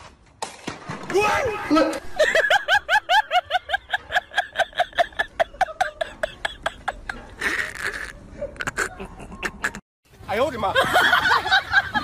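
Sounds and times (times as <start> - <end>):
high-pitched rapid laughter: 2.0 - 9.8.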